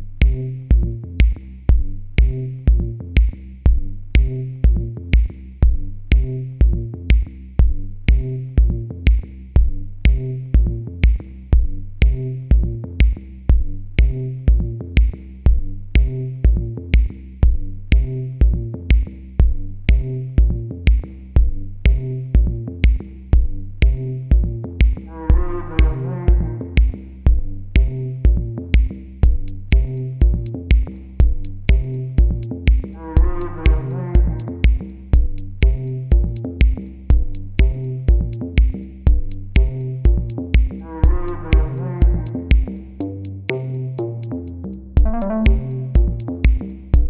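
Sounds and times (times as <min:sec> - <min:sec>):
music with electronic beat: 0:00.2 - 0:47.0.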